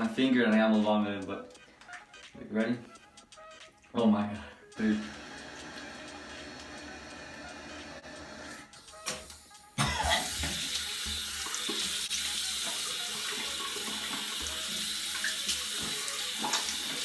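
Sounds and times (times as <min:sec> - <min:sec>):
faucet water running into basin: 0:09.2 - 0:17.0.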